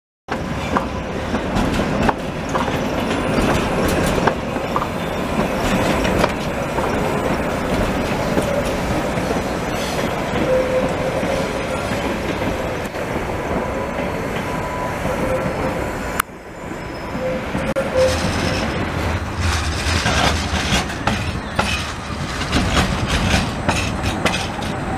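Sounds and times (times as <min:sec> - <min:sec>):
wheels clicking over rail joints: 0:00.3 - 0:12.6, 0:18.0 - 0:24.9
tram rolling rumble: 0:00.3 - 0:24.9
wheel squeal: 0:09.6 - 0:11.9, 0:16.6 - 0:18.9.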